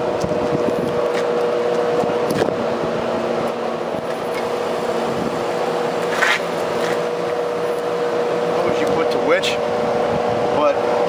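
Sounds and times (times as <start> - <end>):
exhaust fan humming: 0.0 - 11.0
scraping clatter: 6.0 - 7.4.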